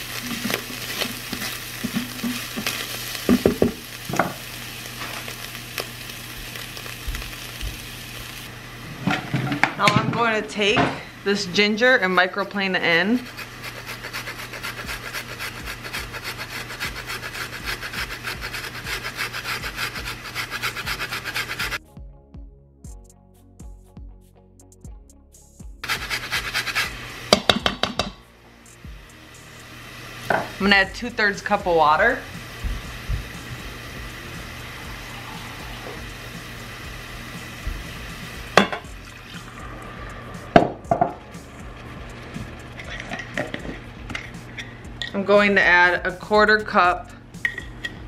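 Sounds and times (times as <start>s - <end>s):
meat sizzling in a pot: 0.0s - 10.7s, 11.3s - 21.8s, 25.8s - 45.2s
ginger rasping on a fine grater: 13.2s - 21.8s, 25.8s - 26.9s
water pouring: 38.9s - 40.6s.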